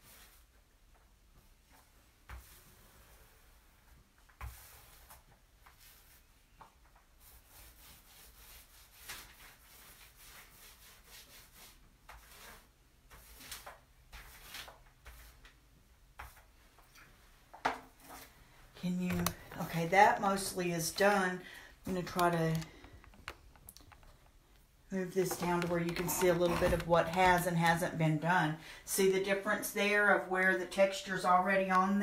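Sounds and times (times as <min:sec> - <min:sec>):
paint roller gritty rubbing: 0:18.8 - 0:24.2, 0:24.9 - 0:28.3.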